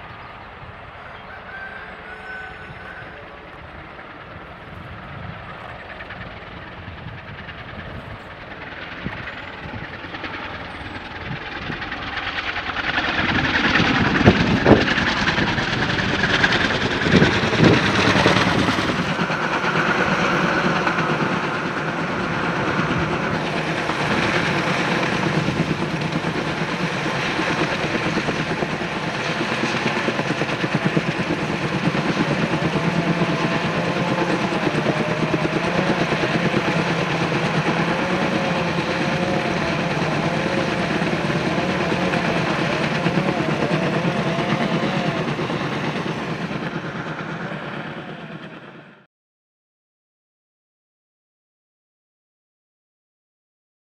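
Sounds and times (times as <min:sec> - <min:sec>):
helicopter rotors and engine: 0:00.0 - 0:49.1
wavering engine whine: 0:00.0 - 0:49.1.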